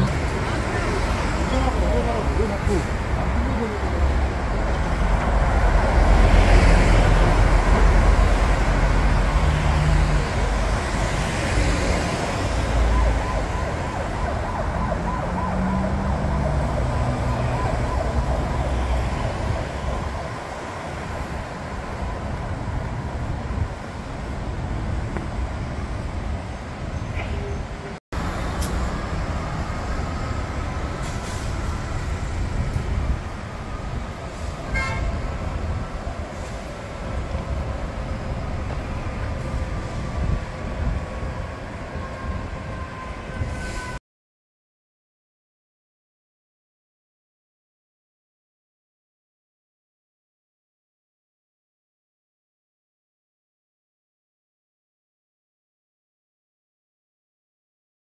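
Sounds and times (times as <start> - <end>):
buses and cars passing: 0.0 - 44.0
traffic hum: 0.0 - 44.0.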